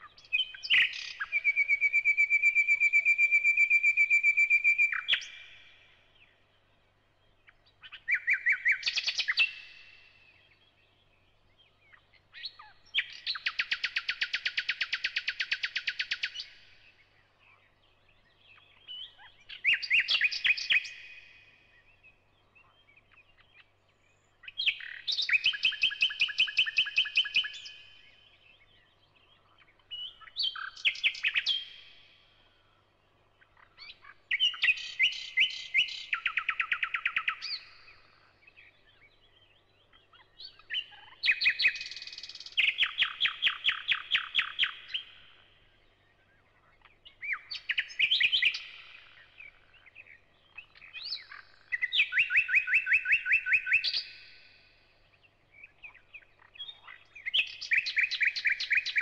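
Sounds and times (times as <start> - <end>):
bird singing whistles and clicks: 0.3 - 5.6, 7.9 - 9.8, 18.8 - 21.2, 24.5 - 27.9, 33.7 - 37.9, 40.4 - 45.3, 47.2 - 49.6, 50.6 - 54.5, 56.0 - 59.0.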